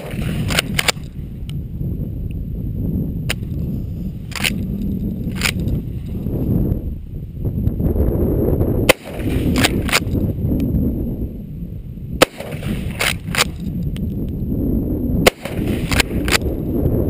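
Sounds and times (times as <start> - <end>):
rifle shots: 0.0 - 1.1, 8.8 - 10.2, 12.2 - 13.7, 15.2 - 16.6
wind noise on microphone: 0.0 - 17.0.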